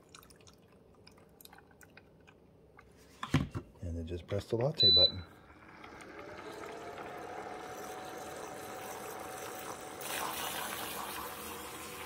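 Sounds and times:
milk frother motor whine: 5.4s - 12.0s.

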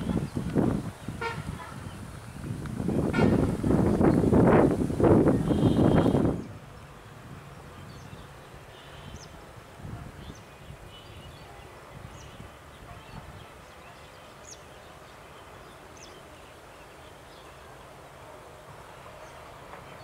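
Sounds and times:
distant diesel locomotive rumble: 0.0s - 20.0s.

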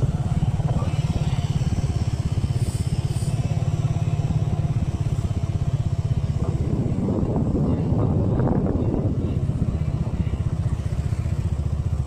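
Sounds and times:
small motorbike engine running: 0.0s - 12.0s.

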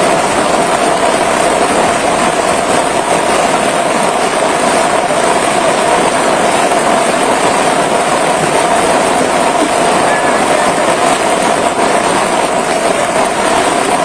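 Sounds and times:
heavy rain: 0.0s - 14.0s
rushing flood water: 0.0s - 14.0s.

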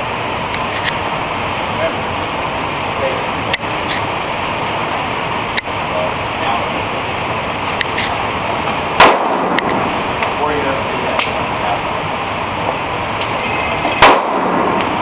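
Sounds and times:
pistol shots: 9.0s - 9.9s, 14.0s - 14.8s.

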